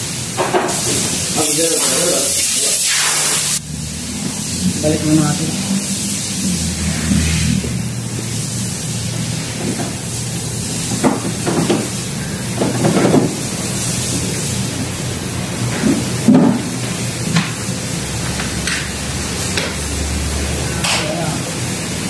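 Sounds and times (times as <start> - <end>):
workshop background hum: 0.0 - 22.0.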